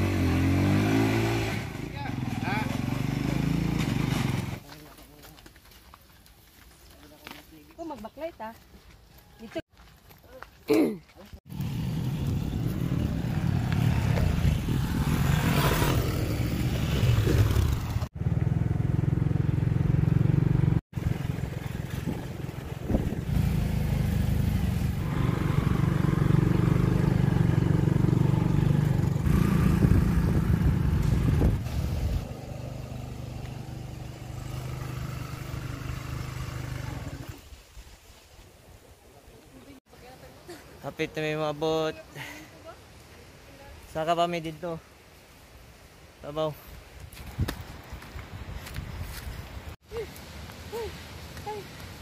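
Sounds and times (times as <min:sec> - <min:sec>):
motorcycle engines running: 0:00.0 - 0:04.6, 0:11.5 - 0:37.4.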